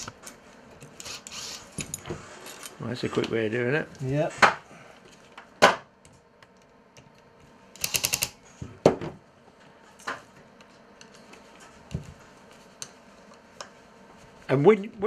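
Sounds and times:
fishing reel clicks: 7.8 - 8.4.

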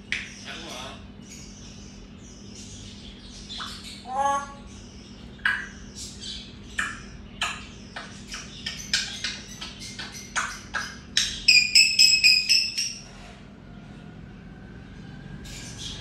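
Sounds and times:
parrot squawking and clicking: 5.4 - 5.8, 6.7 - 13.0.

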